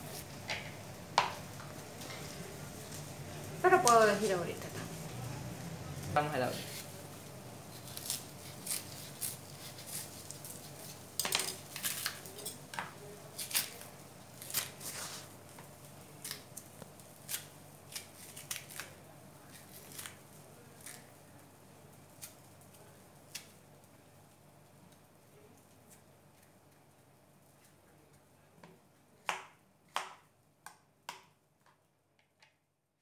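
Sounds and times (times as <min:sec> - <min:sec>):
knife scraping plantain peel: 0:06.5 - 0:07.0, 0:07.7 - 0:12.8, 0:13.4 - 0:15.3, 0:17.2 - 0:20.2.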